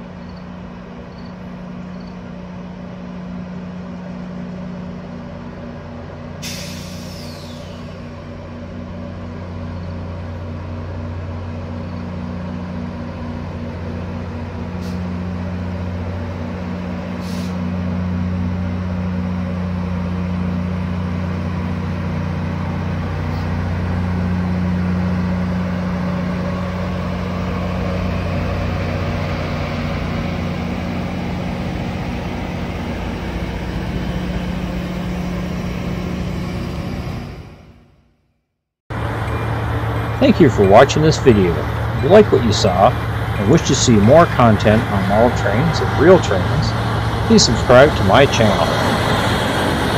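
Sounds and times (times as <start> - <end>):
wheel and rail rumble: 0.0 - 38.1, 38.9 - 49.9
diesel locomotive engine drone: 0.0 - 49.9
brief hisses: 6.4 - 8.0.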